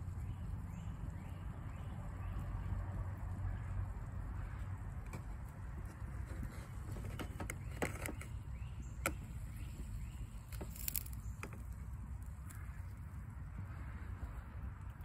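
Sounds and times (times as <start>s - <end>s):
steady low rumble: 0.0s - 6.9s, 8.4s - 15.0s.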